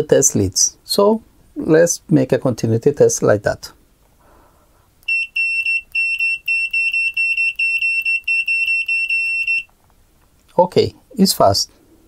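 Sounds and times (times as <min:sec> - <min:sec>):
continuity tester beeping: 0:05.0 - 0:09.7.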